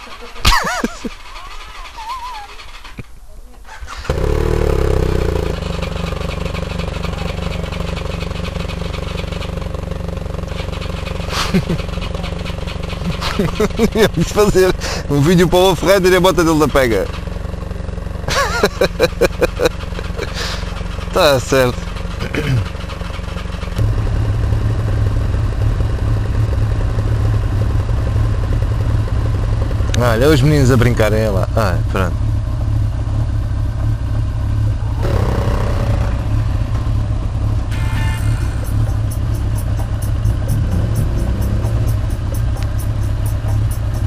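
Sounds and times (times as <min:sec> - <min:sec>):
motorcycle engine idling: 0:00.0 - 0:44.0.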